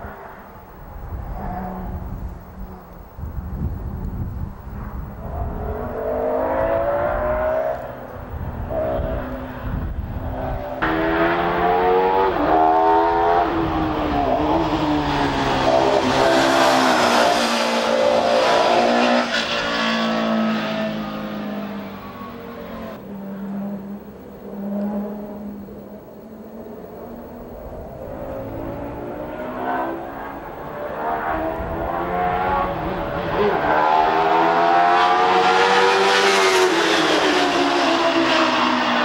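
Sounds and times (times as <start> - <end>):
racing car engine revving: 8.7 - 25.7, 28.0 - 39.0.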